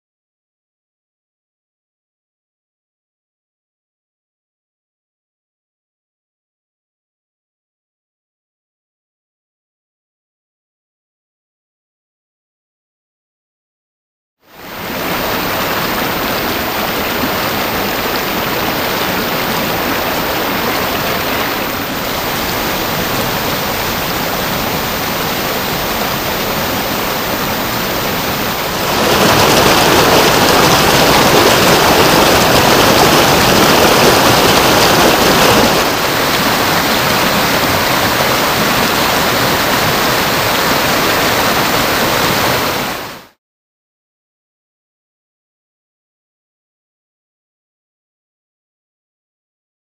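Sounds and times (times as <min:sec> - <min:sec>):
rushing stream water: 0:14.5 - 0:43.4.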